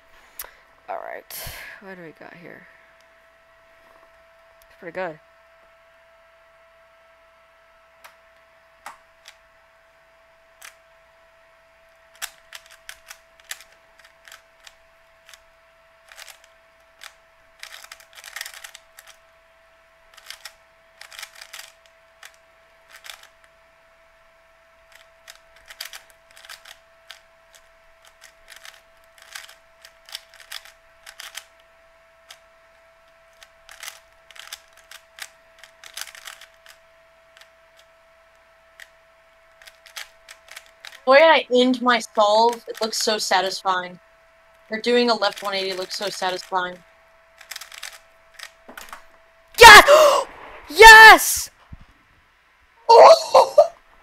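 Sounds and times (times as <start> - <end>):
puzzle cube clicking: 12.1 - 15.4, 16.0 - 19.2, 20.1 - 23.3, 24.9 - 31.5, 33.4 - 36.8, 39.6 - 41.0, 47.4 - 49.0.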